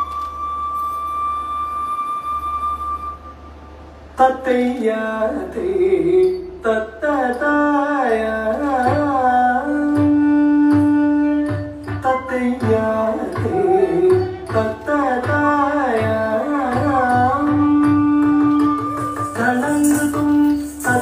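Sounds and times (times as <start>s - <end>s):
person singing ornamented notes: 6.1s - 21.0s
drum strokes: 10.0s - 21.0s.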